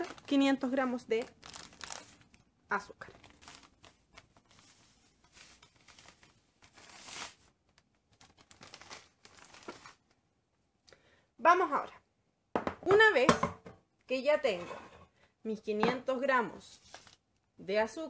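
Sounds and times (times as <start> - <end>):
sugar bag crinkling: 0.0 - 10.2.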